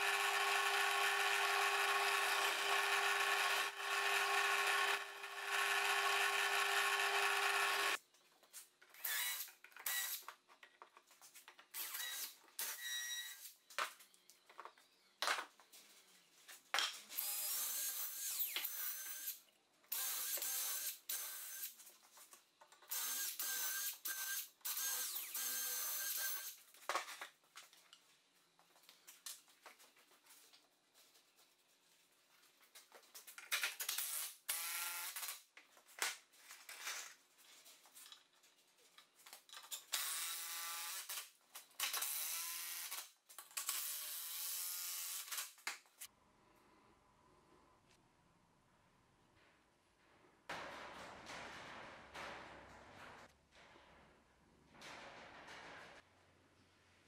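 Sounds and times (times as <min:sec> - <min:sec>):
cordless drill whining: 0:00.0 - 0:08.0
drill press boring into wood: 0:00.0 - 0:08.0.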